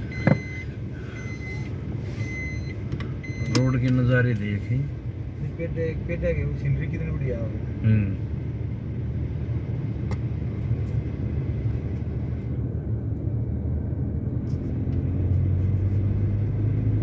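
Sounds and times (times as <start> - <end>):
car cabin road rumble: 0.0 - 17.0.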